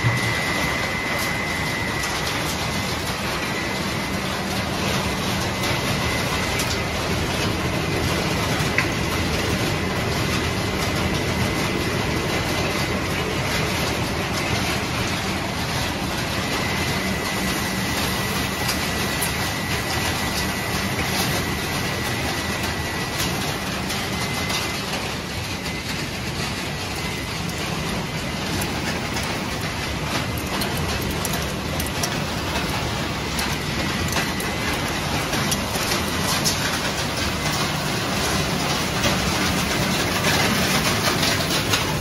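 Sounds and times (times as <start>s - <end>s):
faint high whine: 0.0s - 7.1s
machinery rattling fragments: 1.9s - 42.0s.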